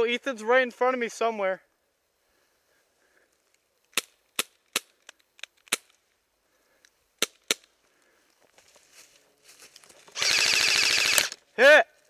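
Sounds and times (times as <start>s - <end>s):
faint rustling: 7.7s - 10.2s.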